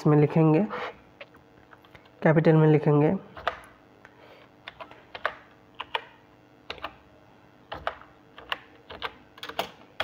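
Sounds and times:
keyboard keys clicking: 4.7s - 6.1s, 6.7s - 7.0s, 7.7s - 10.0s.

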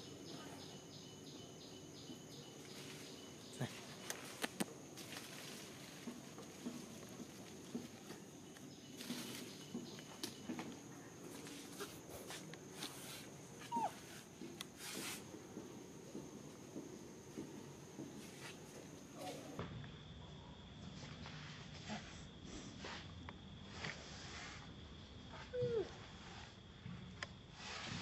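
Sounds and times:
high insect drone: 0.0s - 28.0s
rustles and clicks: 2.6s - 15.4s.

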